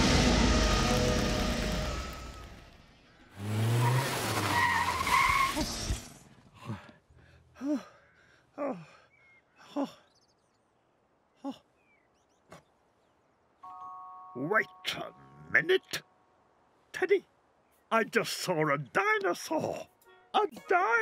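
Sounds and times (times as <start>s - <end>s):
car engine: 0.0s - 6.4s
car tyre squeal: 3.4s - 6.1s
man panting: 6.5s - 10.1s.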